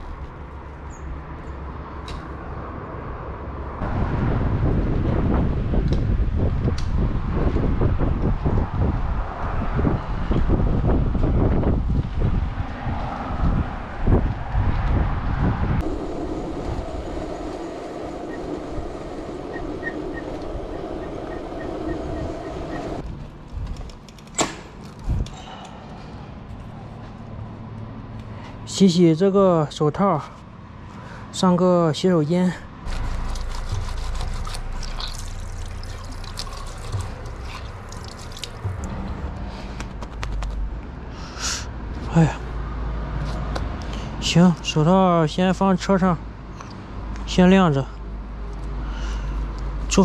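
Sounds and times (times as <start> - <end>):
bicycle road noise on concrete: 0.0 - 28.9, 32.5 - 44.2, 48.0 - 50.0
wind buffeting microphone: 3.8 - 23.9, 25.0 - 25.4
hands washing gloves: 32.9 - 38.8
water splashes and drips: 33.2 - 39.4
tap water running into sink: 34.4 - 38.7.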